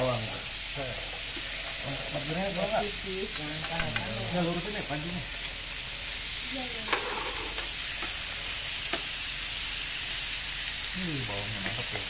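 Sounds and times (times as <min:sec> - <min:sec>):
meat sizzling in a grill pan: 0:00.0 - 0:12.0
tongs clicking against pan: 0:03.3 - 0:04.2.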